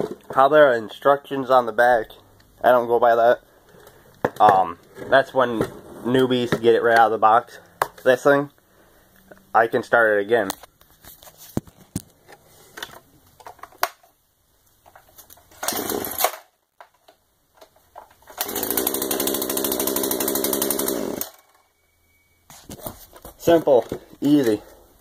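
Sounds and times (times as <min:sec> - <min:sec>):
chainsaw pull-start burst: 0:15.5 - 0:16.5, 0:18.3 - 0:21.6
chainsaw engine running: 0:15.6 - 0:16.2, 0:18.4 - 0:21.6.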